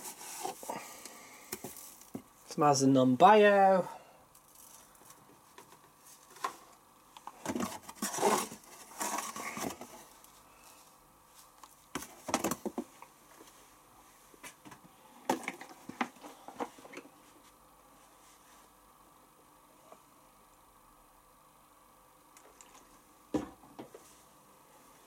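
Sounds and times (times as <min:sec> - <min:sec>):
packaging rustling and scraping: 0:00.0 - 0:00.8, 0:01.5 - 0:02.3, 0:04.4 - 0:12.9.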